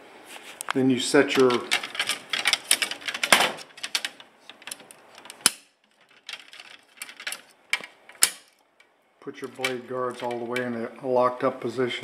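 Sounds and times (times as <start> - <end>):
plastic clicks and rattles: 1.4 - 10.7.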